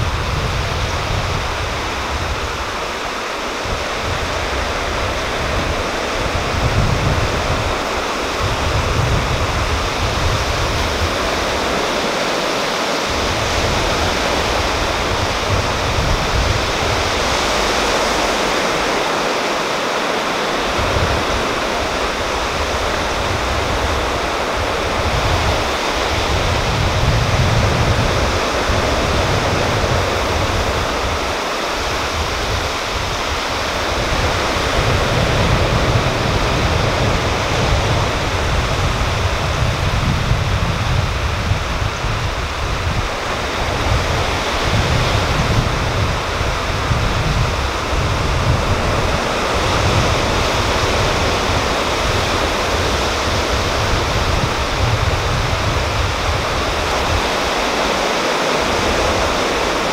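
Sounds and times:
surf hissing on a beach: 0.0 - 59.9.

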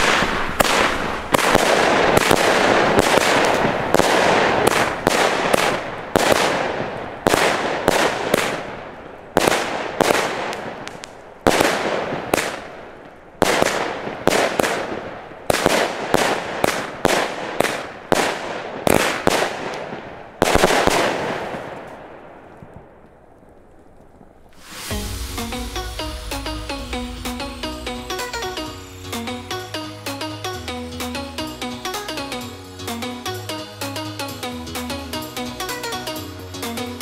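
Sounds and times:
firework shots firing: 0.0 - 22.9, 24.2 - 30.3.

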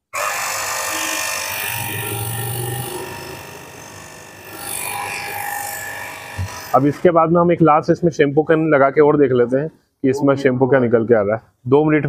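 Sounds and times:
pressure washer pump whining: 0.0 - 6.8.

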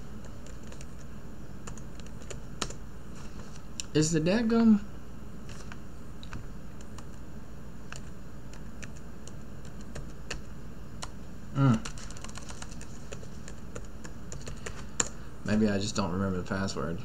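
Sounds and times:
computer keyboard keystrokes: 0.2 - 2.8, 7.9 - 11.2, 11.8 - 15.2
man short vocal sound: 11.5 - 11.9.

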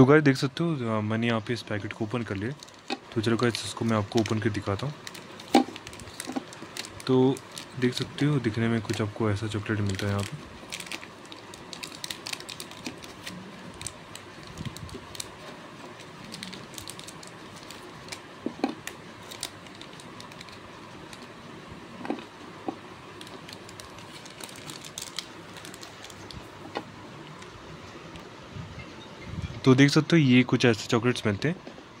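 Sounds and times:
wrapper crinkling: 2.1 - 22.3, 23.0 - 27.5.

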